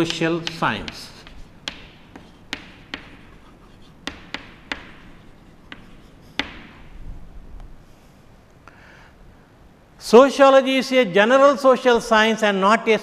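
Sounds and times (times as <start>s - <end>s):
chalk scraping: 0.0s - 6.9s
chalk tapping on chalkboard: 0.0s - 7.0s.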